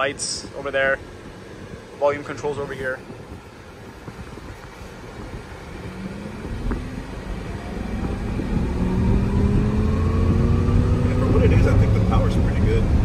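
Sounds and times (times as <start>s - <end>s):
road and tyre rumble: 0.0s - 13.0s
electric drive whine: 3.0s - 13.0s.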